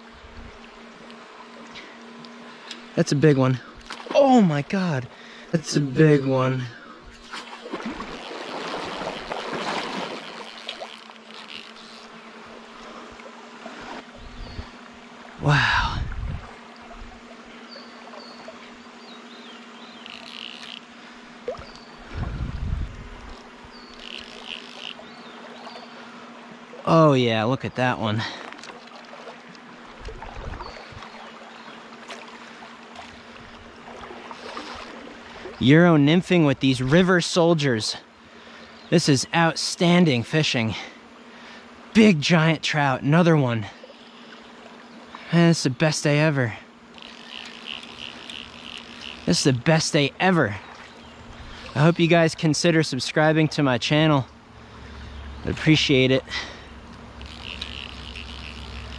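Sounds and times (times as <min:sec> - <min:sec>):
small clicks: 0:08.0 - 0:12.1, 0:19.9 - 0:20.9, 0:23.2 - 0:25.1, 0:46.9 - 0:49.3, 0:56.9 - 0:58.9.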